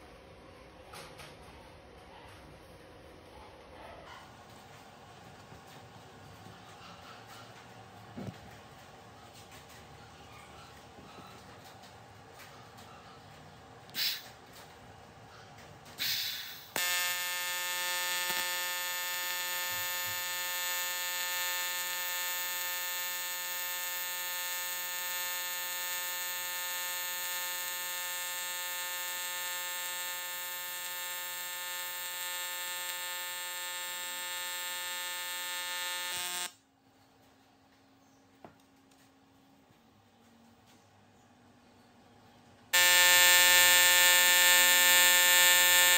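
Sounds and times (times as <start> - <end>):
welding arc buzzing: 16.0 - 36.6, 42.7 - 45.9.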